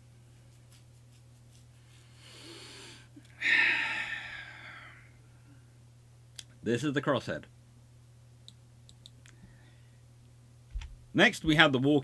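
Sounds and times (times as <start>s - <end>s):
man breathing in: 2.0s - 5.2s
man sighing out-breath: 2.8s - 5.1s.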